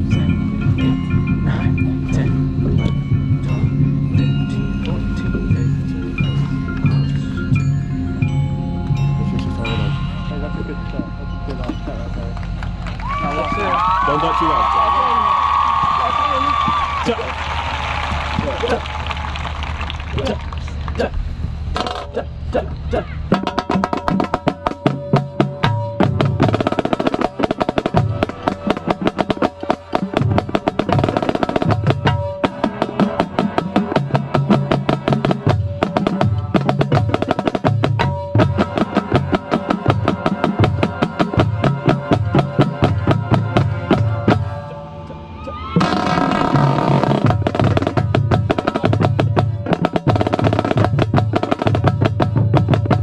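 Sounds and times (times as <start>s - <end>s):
low drum notes: 0.0s - 53.0s
snare drum strokes and rolls: 13.0s - 20.9s, 23.4s - 44.5s, 45.7s - 53.0s
held horn chords: 24.0s - 51.8s.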